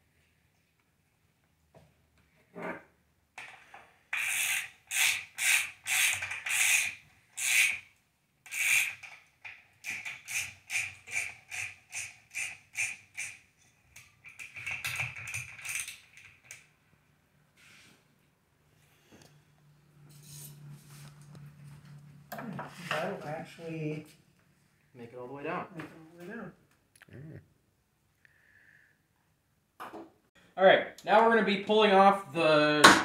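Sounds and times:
ratchet wrench clicking: 4.1s - 7.8s, 8.5s - 9.1s.

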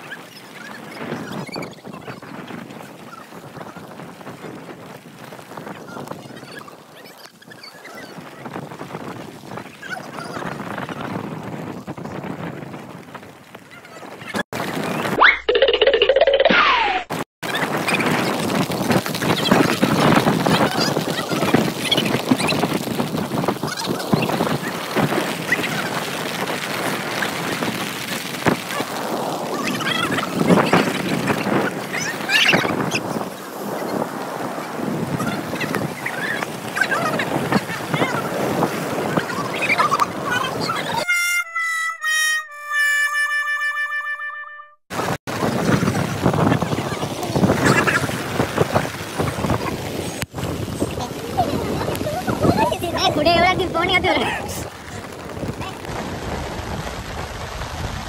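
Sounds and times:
steady rain: 0.0s - 15.1s, 17.4s - 41.0s, 44.9s - 58.0s
wind buffeting microphone: 0.0s - 15.2s, 17.4s - 41.1s, 44.9s - 58.0s
surf breaking: 16.6s - 41.0s, 44.9s - 58.0s.

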